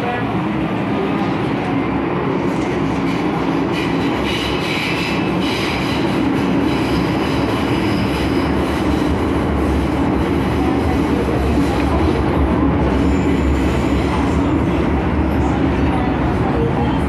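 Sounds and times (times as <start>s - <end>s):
train running noise: 0.0s - 17.0s.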